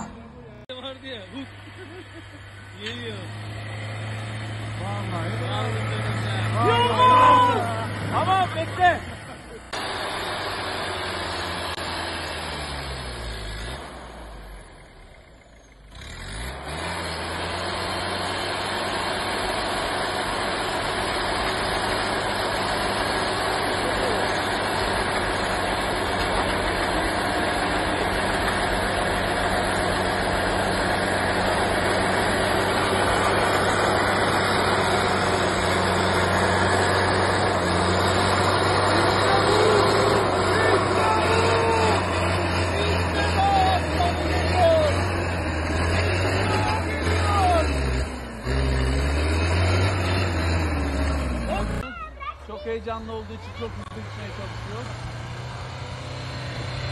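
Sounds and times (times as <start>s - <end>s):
pickup truck engine running: 14.0s - 56.9s.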